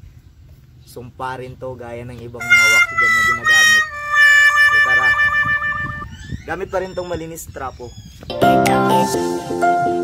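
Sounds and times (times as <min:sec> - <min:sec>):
background music melody: 0:02.4 - 0:06.1.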